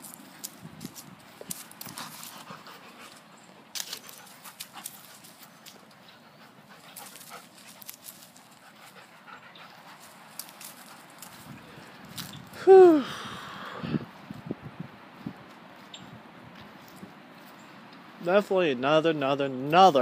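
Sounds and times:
dog panting: 0:01.8 - 0:11.5.

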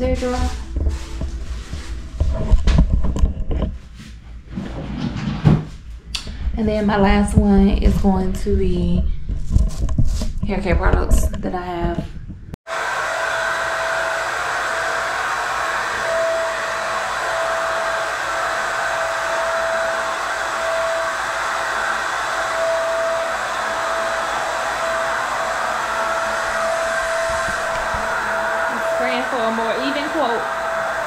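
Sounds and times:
electric blower motor whooshing: 0:12.7 - 0:31.0
faint motor whine: 0:12.7 - 0:31.0.

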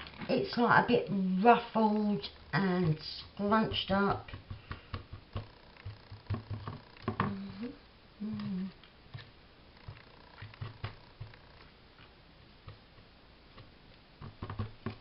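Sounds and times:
hands tapping and rustling paper: 0:01.9 - 0:07.4, 0:09.2 - 0:11.4, 0:12.0 - 0:15.0
low hums: 0:05.3 - 0:13.4.

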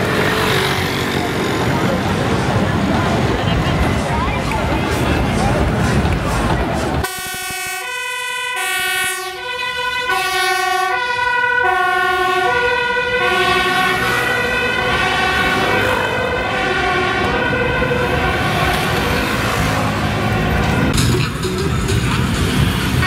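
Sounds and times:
street traffic: 0:00.0 - 0:23.0
two-tone siren: 0:07.0 - 0:21.0.

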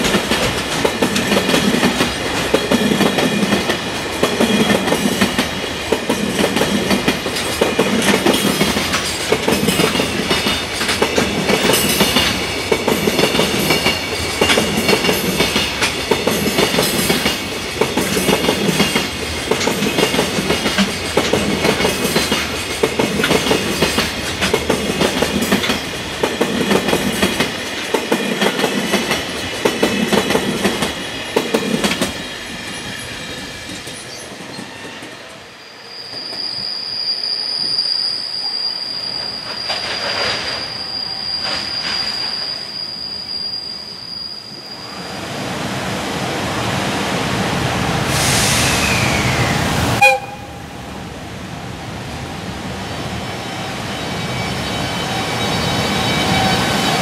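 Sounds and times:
train wheels clattering over joints: 0:00.0 - 0:35.3.

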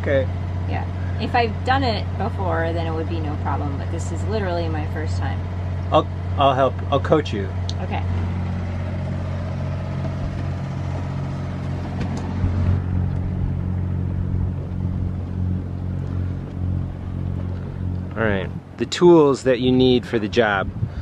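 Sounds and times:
generator droning hum: 0:00.0 - 0:21.0.

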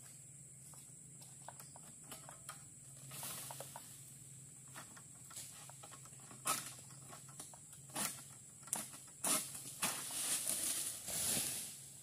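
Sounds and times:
sickle cutting strokes: 0:07.9 - 0:12.0.

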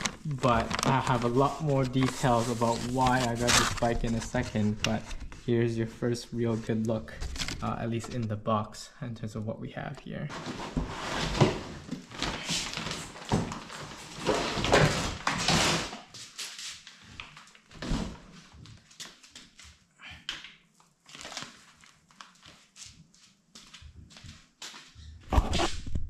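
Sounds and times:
plastic wrapping crinkling: 0:00.0 - 0:05.4, 0:21.0 - 0:22.8
cardboard rustling: 0:00.0 - 0:05.7, 0:10.3 - 0:16.6.

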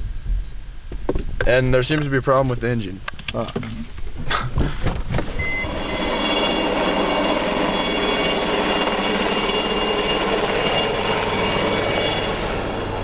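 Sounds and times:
helicopter flying overhead: 0:05.4 - 0:13.0.

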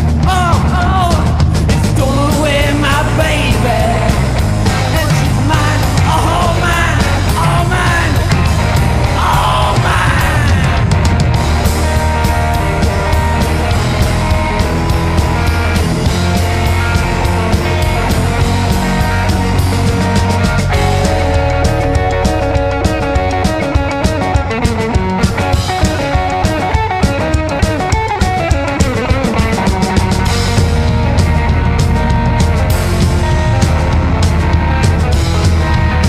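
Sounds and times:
rockabilly band playing: 0:00.0 - 0:36.0
man singing with yells: 0:00.2 - 0:11.0.

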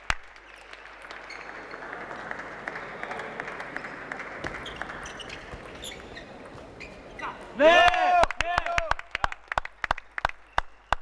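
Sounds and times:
crowd applauding: 0:00.0 - 0:05.5, 0:07.6 - 0:11.0.

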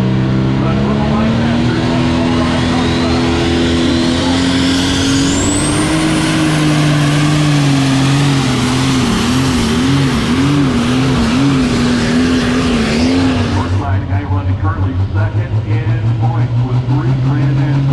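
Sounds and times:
tractor engine at full power: 0:00.0 - 0:17.9
high whistle rising in pitch: 0:02.6 - 0:07.9.

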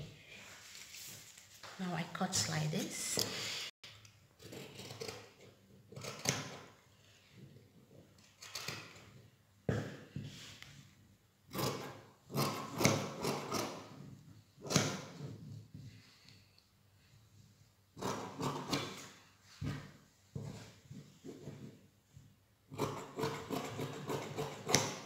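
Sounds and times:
scissors snipping fabric: 0:11.5 - 0:14.0, 0:18.0 - 0:19.1, 0:22.8 - 0:25.0.

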